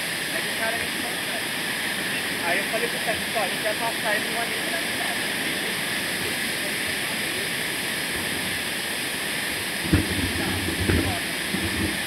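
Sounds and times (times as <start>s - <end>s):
low thumps of bike over bumps: 9.8s - 12.0s.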